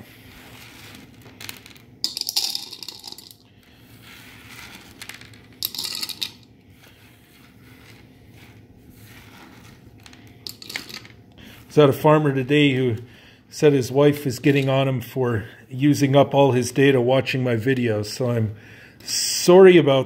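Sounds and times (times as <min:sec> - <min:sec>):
corn kernels clattering on table: 0:00.5 - 0:03.4, 0:04.3 - 0:06.5, 0:09.1 - 0:11.2.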